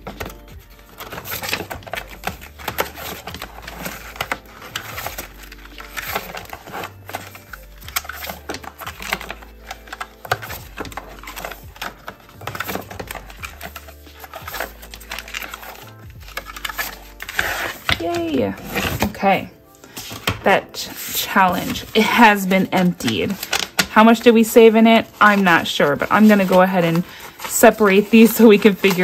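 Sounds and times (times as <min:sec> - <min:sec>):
background music with bass: 0:00.0 - 0:19.1
paper rustling: 0:00.0 - 0:29.0.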